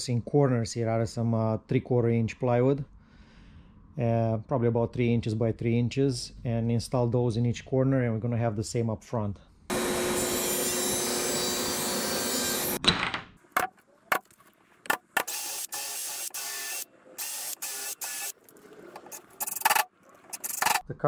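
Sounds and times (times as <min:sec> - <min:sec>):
panel saw cutting plywood: 0:09.7 - 0:12.8.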